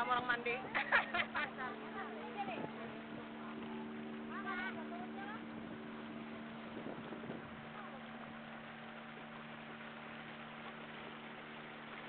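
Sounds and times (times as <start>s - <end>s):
outboard engine running: 0.0s - 12.0s
water rushing past hull: 0.0s - 12.0s
second lower engine tone: 1.5s - 12.0s.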